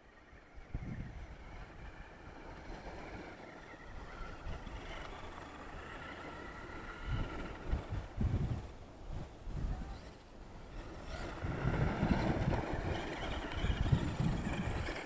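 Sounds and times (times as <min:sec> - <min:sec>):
motor whine: 0:00.0 - 0:15.0
wind rumbling on microphone: 0:00.0 - 0:15.0.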